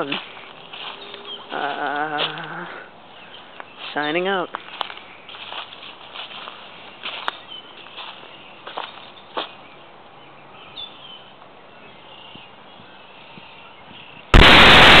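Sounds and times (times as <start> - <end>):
faint bird chirps: 0.0 - 2.2
dry leaves rustling: 0.0 - 9.6
loud hiss: 14.3 - 15.0.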